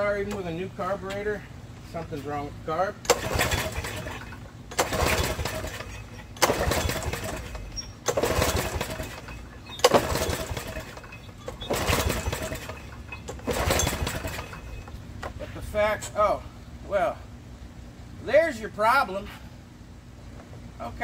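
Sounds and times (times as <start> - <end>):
recoil starter whirring: 3.0 - 15.4.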